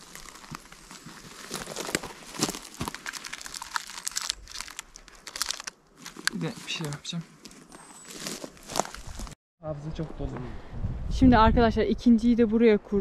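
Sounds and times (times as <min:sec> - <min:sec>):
crinkling on dry forest litter: 0:00.0 - 0:09.4
handling a trail camera: 0:00.1 - 0:09.3.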